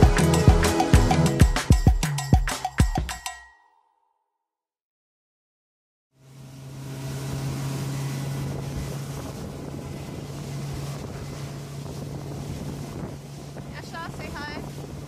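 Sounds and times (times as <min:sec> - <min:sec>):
motorboat engine humming: 0:00.0 - 0:02.5, 0:06.2 - 0:15.0
wind noise on microphone: 0:08.2 - 0:15.0.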